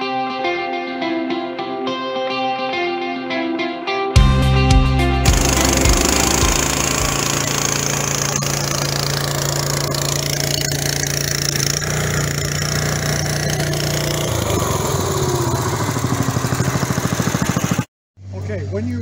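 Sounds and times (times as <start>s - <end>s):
digging chain cutting a trench: 5.2s - 17.9s
trencher engine running: 5.2s - 17.9s.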